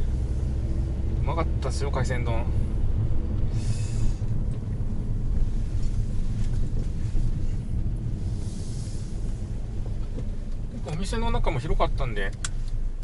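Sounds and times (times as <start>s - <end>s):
road and tyre rumble in car: 0.0s - 13.0s
rushing hiss: 8.2s - 9.4s.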